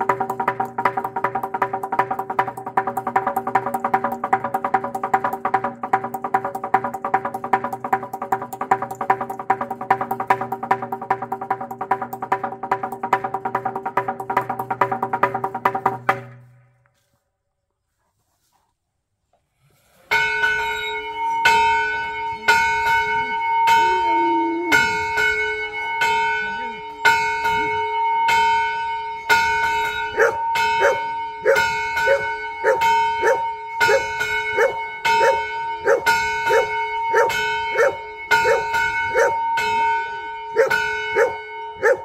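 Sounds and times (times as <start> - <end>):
metal semantron struck with hammers: 0.0 - 16.8
dog low cry: 23.8 - 25.0.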